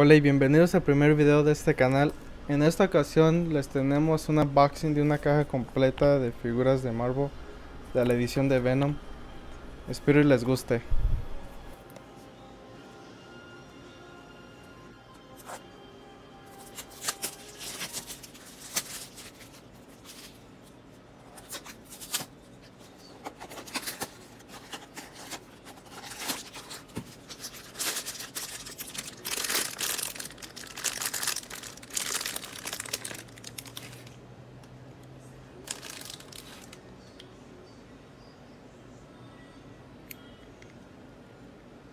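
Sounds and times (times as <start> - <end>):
plastic wrap crinkling and tearing: 16.6 - 20.7, 23.2 - 34.2, 35.6 - 36.8.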